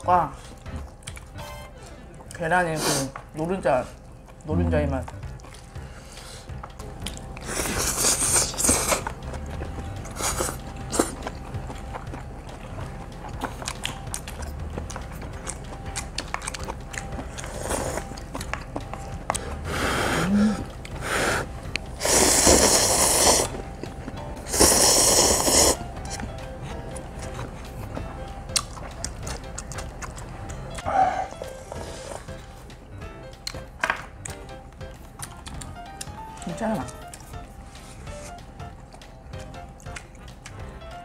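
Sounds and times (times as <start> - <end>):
chewing: 0.4 - 1.4, 3.9 - 32.7, 33.4 - 40.7
slurping noodles: 7.4 - 9.0, 19.7 - 23.6, 24.4 - 25.8.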